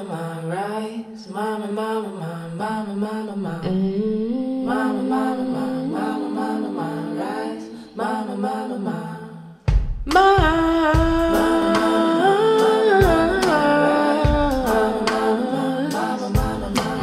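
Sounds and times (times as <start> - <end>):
person singing long sliding notes: 3.5 - 7.8, 10.1 - 17.0
deep drum beats: 9.7 - 12.1, 13.0 - 15.4, 16.3 - 17.0.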